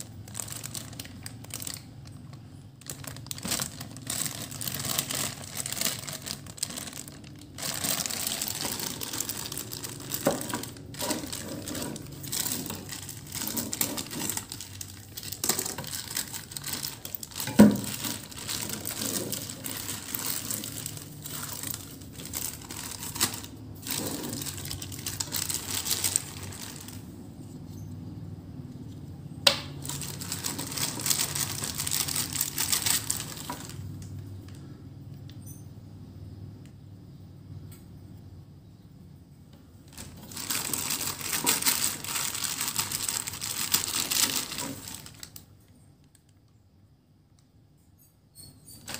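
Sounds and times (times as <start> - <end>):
plastic bags crinkling: 0.0 - 27.4, 29.5 - 34.6, 39.8 - 46.3.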